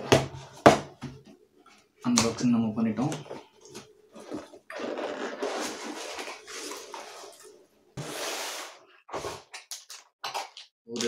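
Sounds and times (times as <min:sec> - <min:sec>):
cardboard and plastic rustling: 0:03.0 - 0:09.5.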